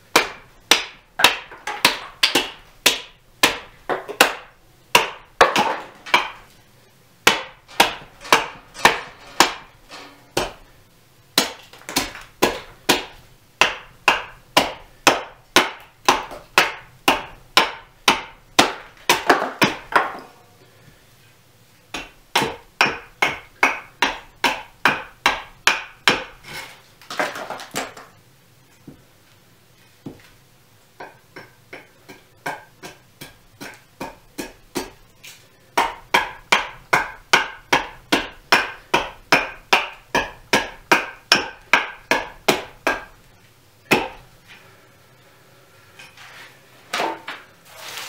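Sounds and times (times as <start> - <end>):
axe chopping wood: 0.1 - 6.6, 7.2 - 9.7, 10.3 - 10.7, 11.4 - 20.2, 21.9 - 26.4, 31.0 - 35.0, 35.8 - 43.2, 43.9 - 44.3.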